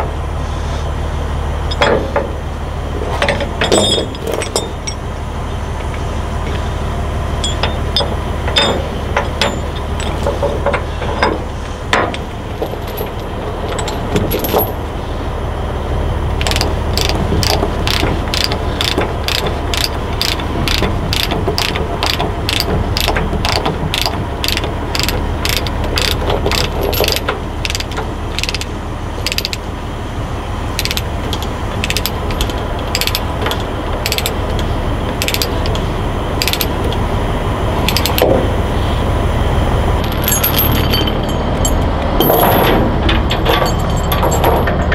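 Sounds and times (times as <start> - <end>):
low hum: 0.0 - 44.9
ratchet clicks: 16.4 - 29.6, 30.8 - 35.8, 36.4 - 37.0, 37.8 - 38.3
metal chain clinks: 40.0 - 42.5.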